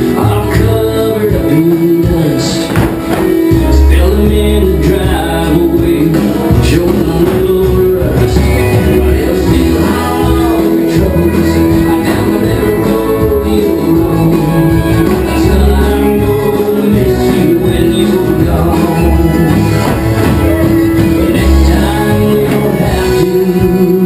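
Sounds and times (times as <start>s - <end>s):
guitar: 0.0s - 24.0s
person singing: 0.0s - 24.0s
steady bass line: 0.0s - 24.0s.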